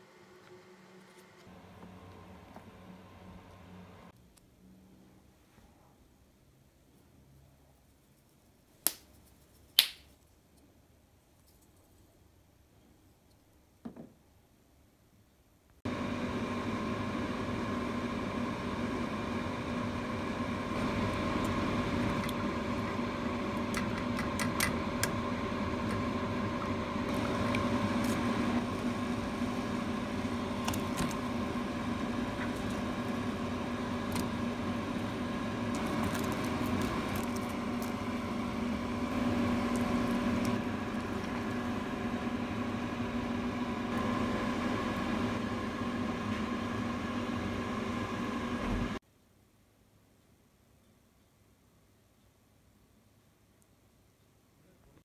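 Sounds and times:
kitchen appliance humming: 15.9s - 49.0s.

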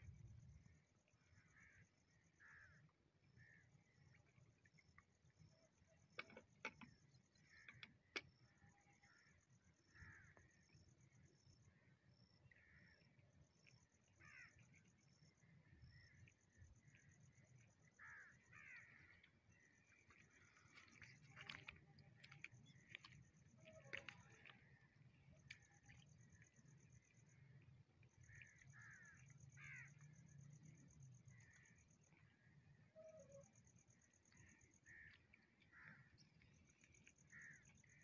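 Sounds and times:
faint birds calling: 14.2s - 14.8s, 15.7s - 27.6s, 28.2s - 30.1s.

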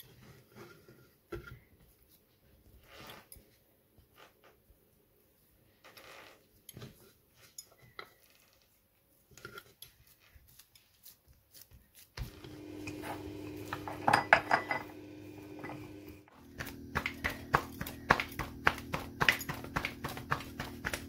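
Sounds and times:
steady hum: 12.4s - 21.0s
clinks and knocks: 12.8s - 16.0s
dough pressed on wooden board: 16.4s - 21.0s.

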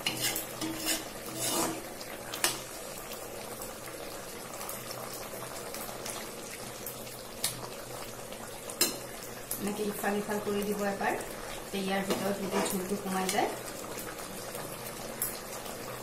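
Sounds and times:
spoon stirring: 0.0s - 1.8s
curry bubbling in a pan: 0.0s - 16.0s.

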